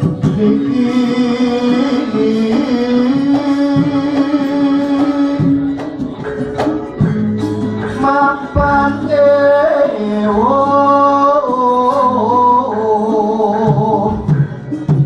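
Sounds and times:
gamelan accompaniment: 0:00.0 - 0:15.0.

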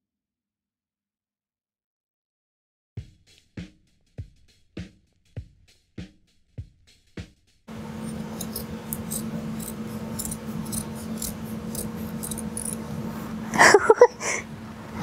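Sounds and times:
scissors snipping fabric: 0:07.9 - 0:12.9.

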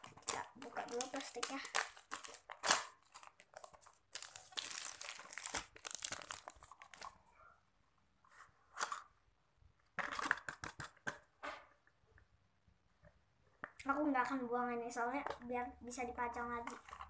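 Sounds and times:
plastic wrapping tearing and crinkling: 0:00.0 - 0:07.2.

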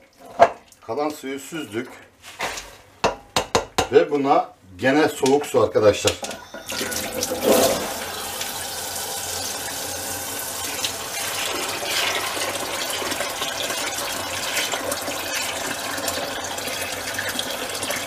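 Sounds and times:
water running from tap into pot: 0:06.1 - 0:18.0.

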